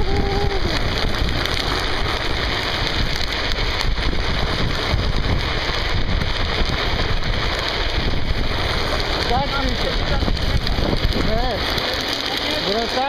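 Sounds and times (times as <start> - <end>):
wheels rumbling on asphalt: 0.0 - 13.0
wind buffeting microphone: 0.0 - 13.0.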